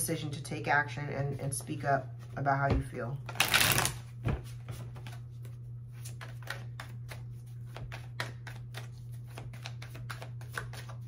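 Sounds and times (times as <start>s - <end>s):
steady low hum: 0.0s - 11.0s
cards shuffling: 3.3s - 11.0s.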